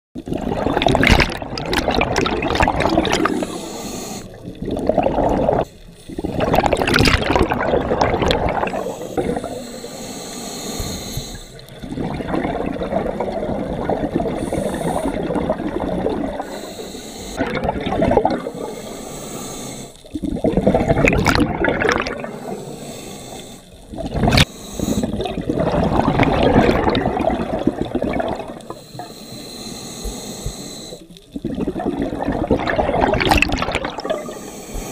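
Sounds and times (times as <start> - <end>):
exhaled bubbles rushing: 0.2 - 3.6, 4.2 - 9.6, 11.6 - 16.5, 17.4 - 18.7, 20.0 - 22.5, 23.8 - 28.8, 31.2 - 34.4
underwater regulator breathing: 1.1 - 7.6, 8.2 - 12.8, 14.1 - 32.3, 33.1 - 34.9.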